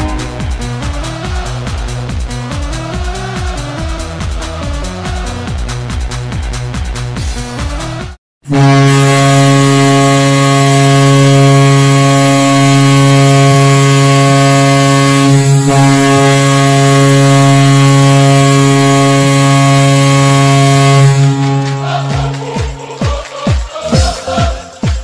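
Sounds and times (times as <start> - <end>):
deep goal horn blast: 0.0 - 3.0, 8.4 - 23.0
arena music: 0.0 - 5.1, 18.4 - 25.0.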